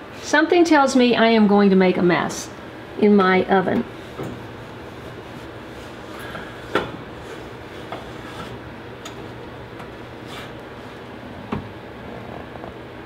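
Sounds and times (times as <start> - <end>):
oven humming: 0.0 - 13.0.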